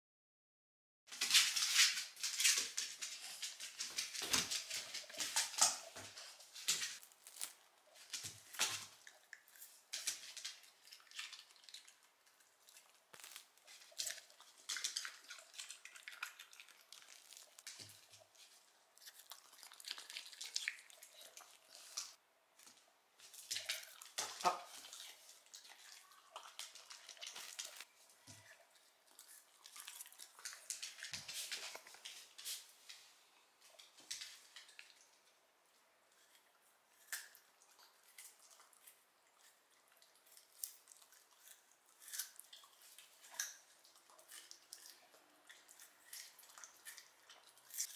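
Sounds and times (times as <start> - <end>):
dog chewing and smacking: 7.9 - 22.2, 23.3 - 32.4, 36.1 - 47.9.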